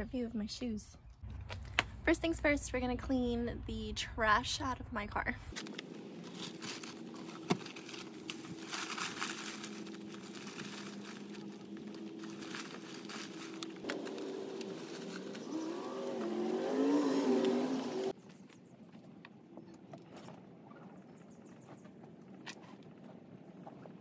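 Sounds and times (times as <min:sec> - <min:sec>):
steady low hum: 0:01.3 - 0:20.1
plastic bags rustling: 0:05.5 - 0:18.1
vehicle engine revving: 0:05.6 - 0:18.2.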